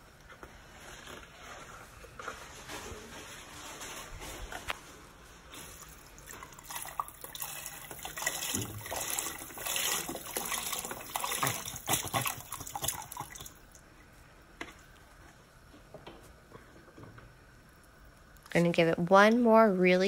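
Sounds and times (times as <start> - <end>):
broth pouring into pot: 5.5 - 13.9.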